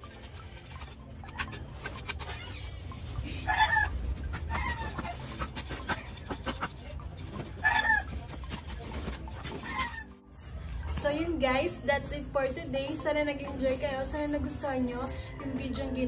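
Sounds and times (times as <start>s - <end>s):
knife scraping bark from sticks: 0.0s - 11.0s
chickens clucking: 2.7s - 10.2s.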